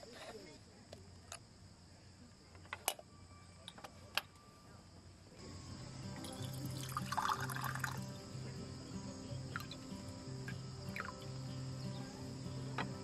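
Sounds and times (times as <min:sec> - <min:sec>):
background music: 0:05.4 - 0:13.0
water pouring into metal pot: 0:06.2 - 0:08.1.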